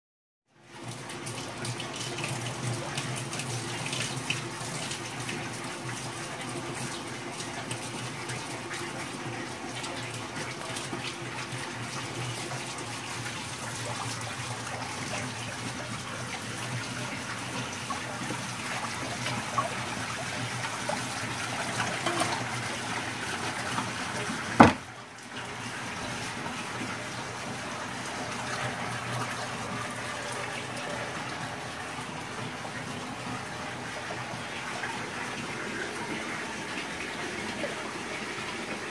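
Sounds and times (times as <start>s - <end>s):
water splashing into tank: 0.6s - 38.9s
sharp knock: 24.6s - 24.8s.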